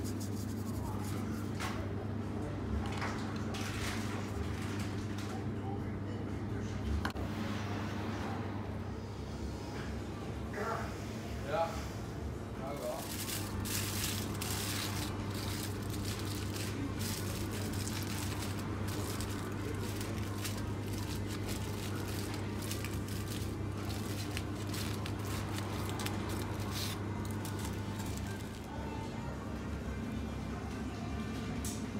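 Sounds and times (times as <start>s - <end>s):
steady low hum: 5.2s - 31.9s
aluminium foil crinkling: 12.7s - 28.8s.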